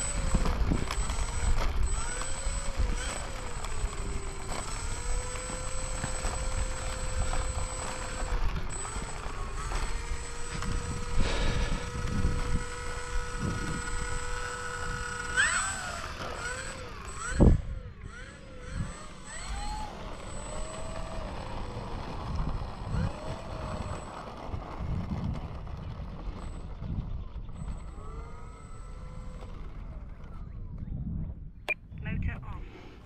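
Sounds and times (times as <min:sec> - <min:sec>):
electric motor and propeller whine: 0:00.0 - 0:31.6
wind gusts on microphone: 0:06.2 - 0:16.0, 0:17.2 - 0:33.0.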